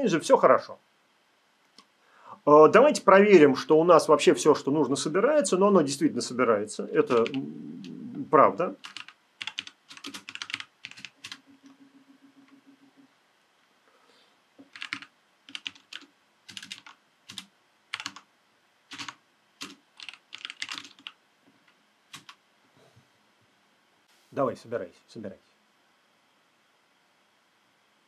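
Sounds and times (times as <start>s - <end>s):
keyboard typing: 7.0s - 8.0s, 8.8s - 13.1s, 14.6s - 18.3s, 18.9s - 21.2s, 22.1s - 22.4s.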